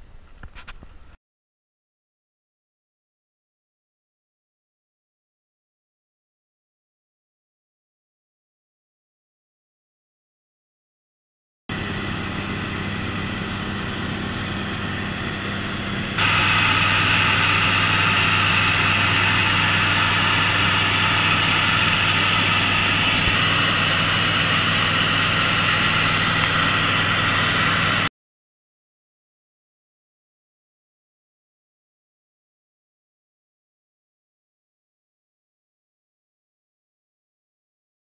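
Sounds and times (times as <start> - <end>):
light aircraft engine droning: 11.7 - 28.1.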